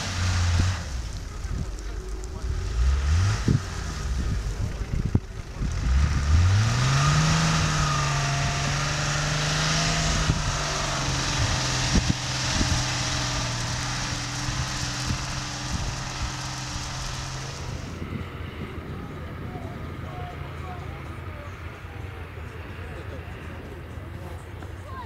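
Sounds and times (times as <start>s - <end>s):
car engine revving: 0.0s - 23.1s
steady hiss: 9.0s - 17.9s.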